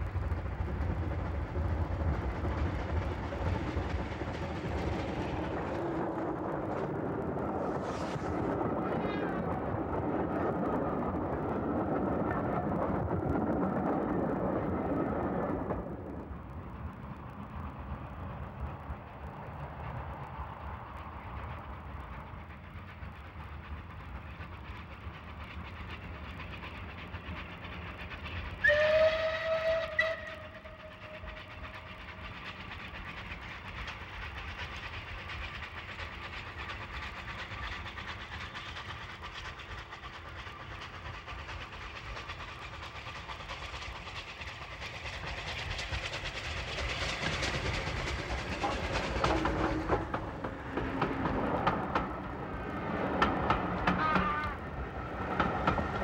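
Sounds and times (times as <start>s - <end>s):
steam locomotive chugging: 0.0s - 56.0s
steam whistle blast: 28.6s - 30.8s
wheels clacking over rail joints: 47.1s - 56.0s.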